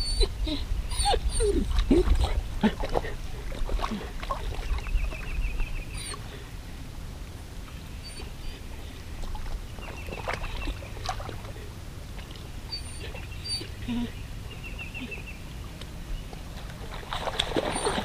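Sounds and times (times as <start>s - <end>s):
wind rumble on microphone: 0.0s - 12.6s.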